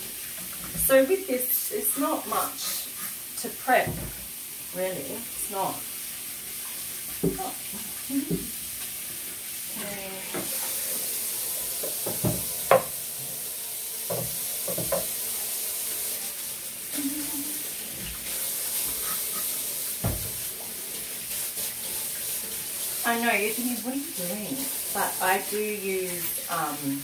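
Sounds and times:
tap running into sink: 7.1s - 8.6s, 10.3s - 13.4s, 14.0s - 15.4s, 18.0s - 20.7s
dishes clattering against sink: 11.8s - 13.0s, 14.1s - 15.2s
scrubbing dishes: 14.0s - 15.2s, 16.9s - 23.7s.

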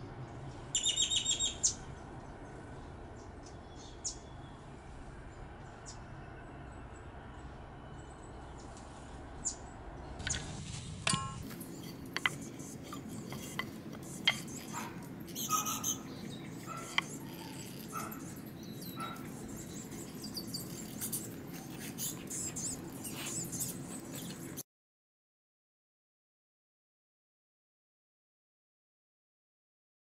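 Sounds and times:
faint bird chirps: 0.7s - 1.8s, 11.7s - 24.6s
pencil marking wood: 11.4s - 24.6s.

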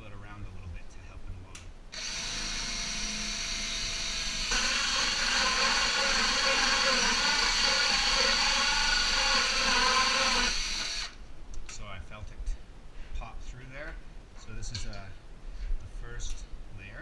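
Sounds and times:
drill with hole saw cutting wood: 2.0s - 11.2s.

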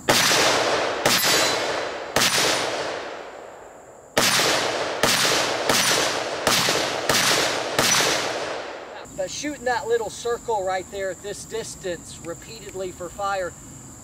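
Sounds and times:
rifle shots with long echo: 0.0s - 9.0s.

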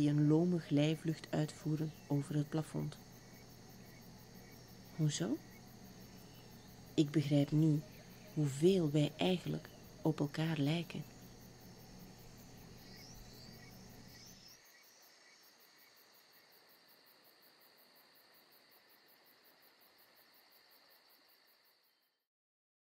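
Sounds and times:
low hum: 0.0s - 14.5s
insect chirring: 0.0s - 22.2s.

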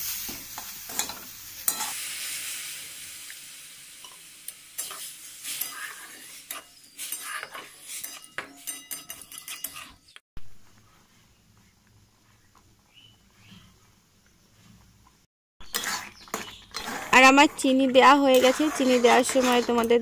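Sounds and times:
milk sizzling in hot pan: 0.0s - 10.0s, 15.6s - 20.0s
metal spatula scraping pan: 0.9s - 2.0s, 4.8s - 10.2s, 15.6s - 20.0s.

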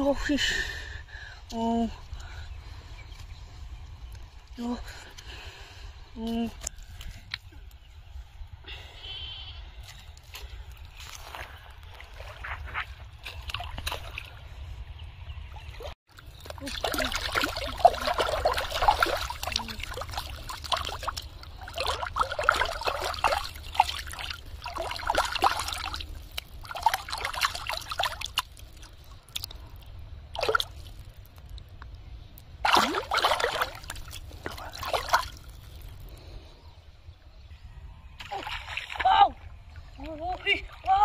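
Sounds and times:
water sloshing and trickling: 10.0s - 36.3s, 38.2s - 41.0s
fish splashing in water: 16.2s - 29.4s, 32.6s - 35.8s.

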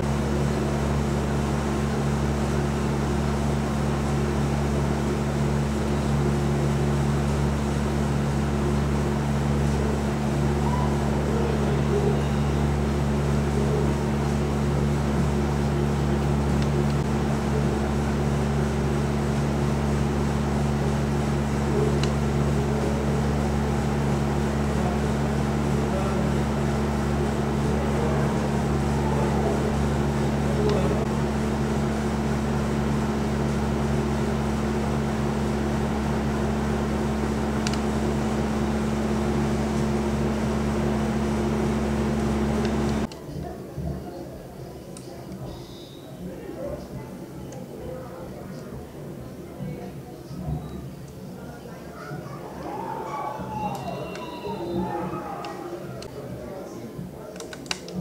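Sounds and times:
steady low hum: 0.0s - 43.1s.

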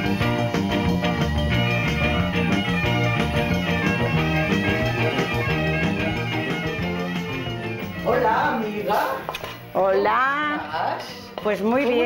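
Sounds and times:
plucked guitar: 0.0s - 8.2s
bass line: 0.0s - 9.2s.

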